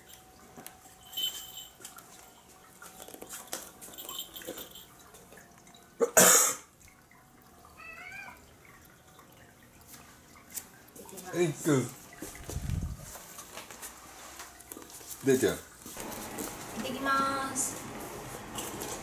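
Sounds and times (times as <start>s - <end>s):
person coughing: 6.0s - 6.7s.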